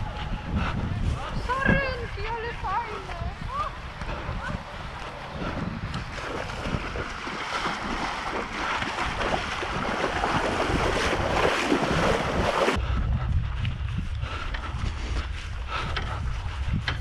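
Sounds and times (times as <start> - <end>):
people wading through water: 0.0 - 12.8
wind rumbling on microphone: 0.0 - 17.0.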